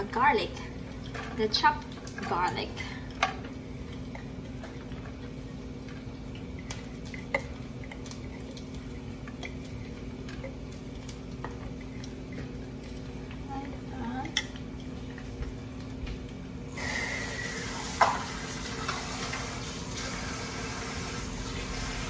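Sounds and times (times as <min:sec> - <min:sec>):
spatula scraping and tapping: 0:00.9 - 0:16.2.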